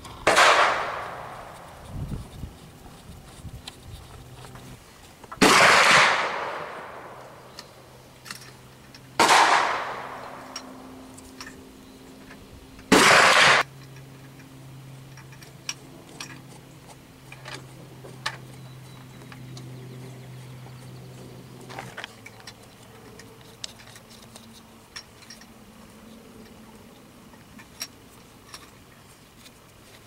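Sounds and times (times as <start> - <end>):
loud gunshots echoing: 0.3 - 1.3, 5.4 - 7.1, 9.2 - 10.2, 12.9 - 13.6.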